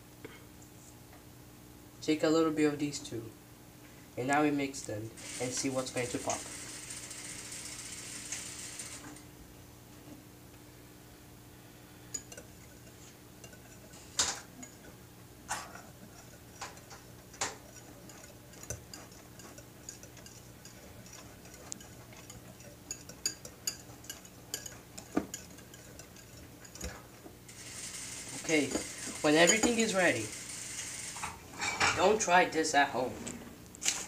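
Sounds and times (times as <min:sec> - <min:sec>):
whisk clicking against bowl: 0:12.1 - 0:14.9, 0:15.5 - 0:30.4.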